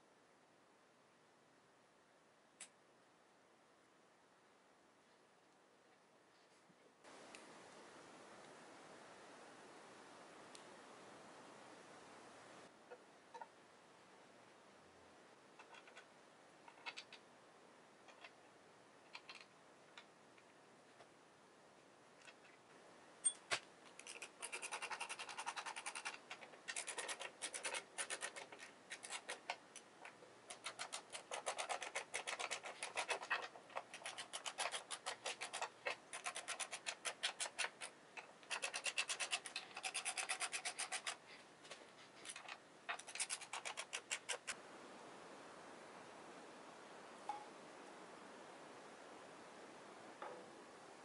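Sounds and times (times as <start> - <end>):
rapid even clicking: 23.9 - 41.2, 42.3 - 44.6.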